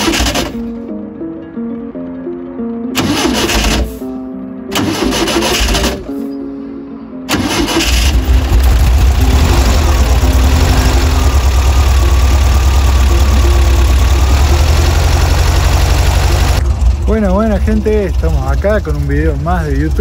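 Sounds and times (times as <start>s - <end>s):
car engine starting and idling: 0.0s - 1.0s, 2.8s - 6.4s, 7.3s - 20.0s.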